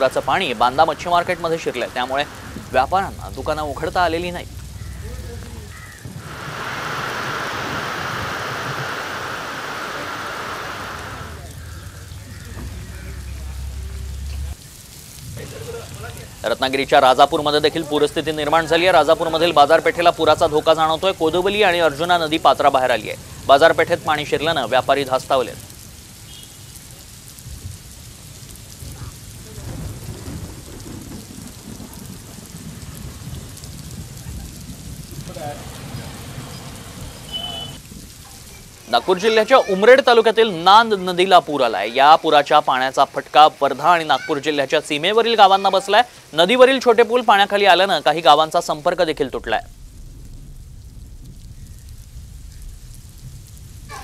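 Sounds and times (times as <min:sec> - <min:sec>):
low rumble of thunder: 0:00.0 - 0:09.0, 0:11.0 - 0:16.4, 0:27.4 - 0:38.9, 0:48.7 - 0:54.0
water rushing: 0:00.0 - 0:27.3, 0:34.0 - 0:50.8
heavy rain falling: 0:00.0 - 0:54.0.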